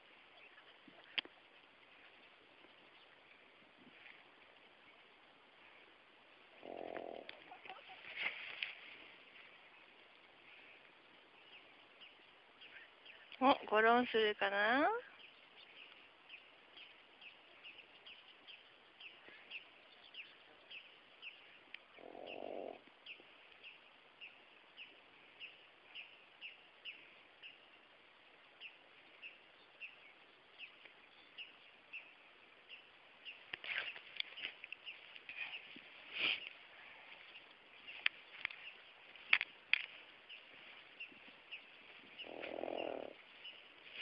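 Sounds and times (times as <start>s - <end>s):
small bird chirping: 15.0s - 27.7s, 28.5s - 44.0s.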